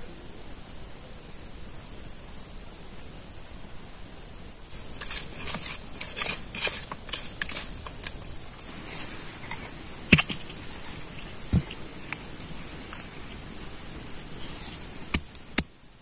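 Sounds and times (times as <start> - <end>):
rustling and crackling: 4.7 - 16.0.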